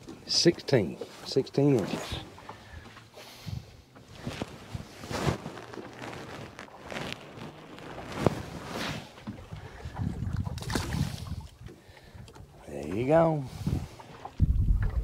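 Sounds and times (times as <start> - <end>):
water sloshing against boat: 0.0 - 15.0
fish splashing into water: 7.5 - 11.6
wind buffeting microphone: 9.2 - 12.3, 13.4 - 15.0.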